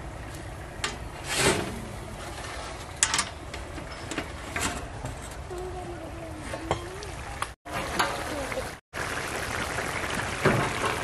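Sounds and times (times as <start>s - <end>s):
steel cover plate scraping: 1.2s - 5.4s.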